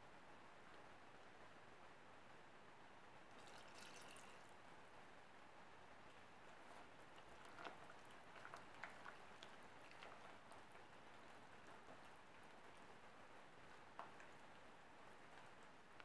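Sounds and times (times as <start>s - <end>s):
whisk stirring batter in bowl: 6.7s - 12.5s.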